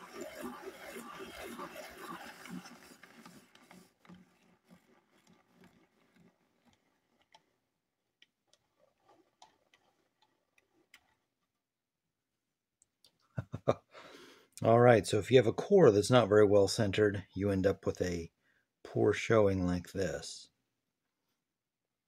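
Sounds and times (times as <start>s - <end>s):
pencil sharpener crank turning: 0.0s - 11.6s.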